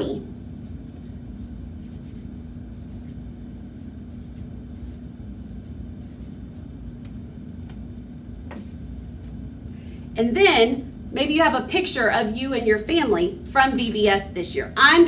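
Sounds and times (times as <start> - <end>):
low room hum: 0.0 - 15.0
marker scratching on paper: 0.6 - 7.1.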